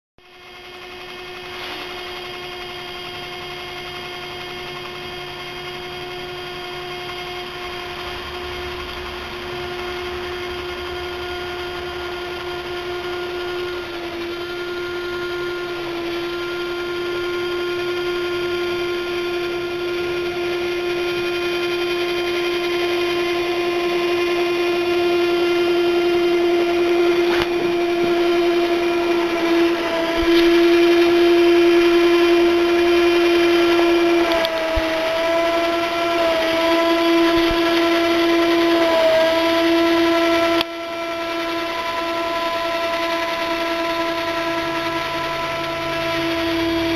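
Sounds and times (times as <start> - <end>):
drill motor whine: 0.2 - 46.9.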